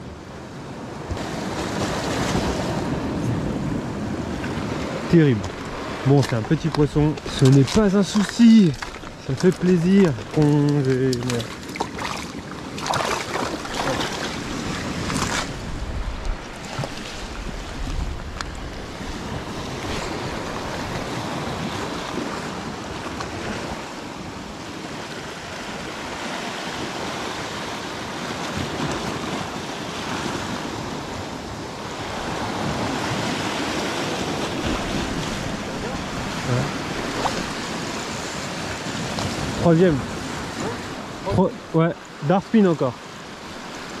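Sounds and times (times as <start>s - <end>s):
waves breaking on rocks: 0.5s - 44.0s
wind buffeting microphone: 0.9s - 26.0s.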